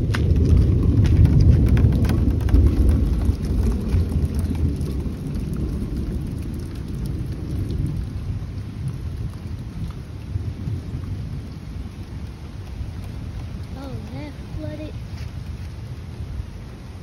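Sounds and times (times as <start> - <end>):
faint hiss of rain: 0.0 - 17.0
thunder rumble: 0.0 - 17.0.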